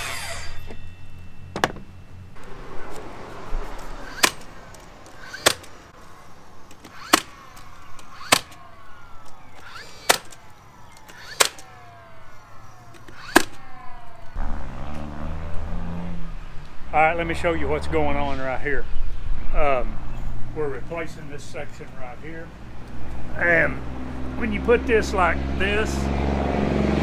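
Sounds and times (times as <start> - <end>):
short falling whine: 0.0 - 16.4
nailer shots: 4.0 - 5.8, 6.7 - 8.6, 9.2 - 11.9, 12.7 - 13.6.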